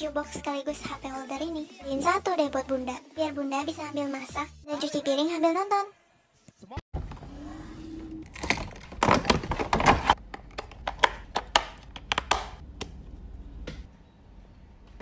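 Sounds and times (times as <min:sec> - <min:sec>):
plastic parts clicking and clattering: 0:08.3 - 0:12.4.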